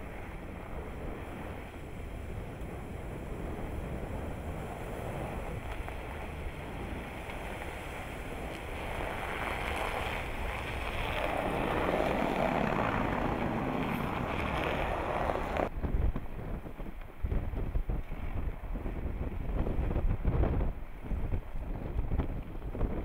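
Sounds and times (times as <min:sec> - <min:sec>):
truck engine driving: 0:00.0 - 0:15.7
wind on microphone: 0:00.0 - 0:23.0.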